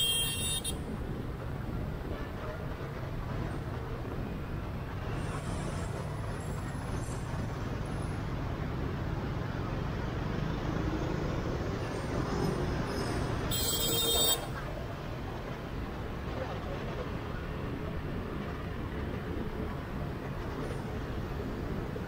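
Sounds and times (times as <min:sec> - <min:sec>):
road noise: 0:00.0 - 0:22.0.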